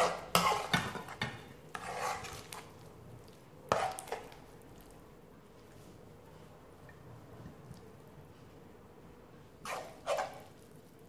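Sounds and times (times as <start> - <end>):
spoon scraping risotto in metal pan: 0.0 - 4.9, 9.6 - 11.0.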